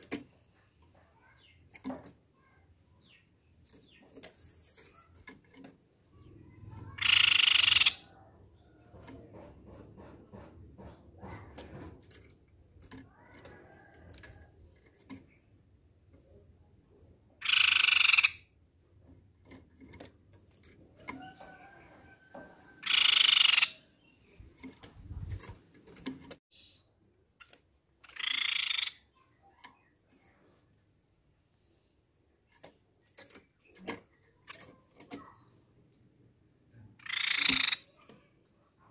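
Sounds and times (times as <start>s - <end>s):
taps and clicks from cage: 8.8s - 15.4s, 19.0s - 23.6s, 24.5s - 26.4s, 32.5s - 35.5s
bird calling: 21.1s - 23.9s, 37.0s - 38.1s.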